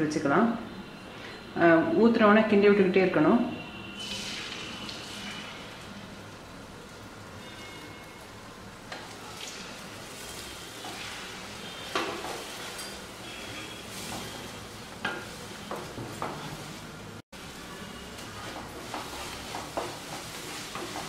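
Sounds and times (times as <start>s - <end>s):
eggs sizzling in oil: 3.8s - 21.0s
wooden spatula scraping pan: 10.2s - 16.8s, 18.2s - 21.0s.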